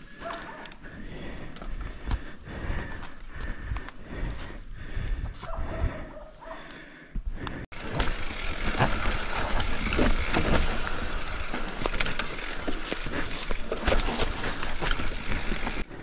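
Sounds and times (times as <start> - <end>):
bike clicking and rattling: 0.0 - 5.3, 7.4 - 16.0
bike tyres crunching over leaves: 7.8 - 16.0.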